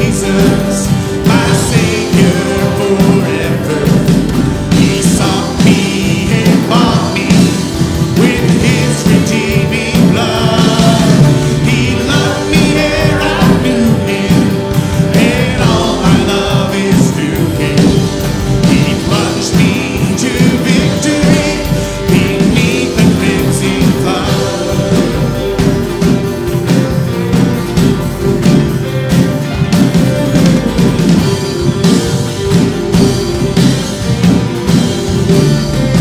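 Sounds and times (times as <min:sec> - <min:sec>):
voices singing together: 0:00.0 - 0:26.8
acoustic guitar: 0:00.0 - 0:36.0
electric guitar: 0:00.0 - 0:36.0
keyboard: 0:00.0 - 0:36.0.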